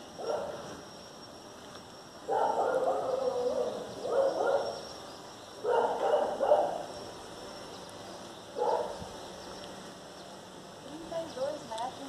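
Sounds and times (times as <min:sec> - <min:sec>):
dog barking: 0:00.2 - 0:00.6, 0:02.3 - 0:04.8, 0:05.6 - 0:06.8, 0:08.6 - 0:09.0.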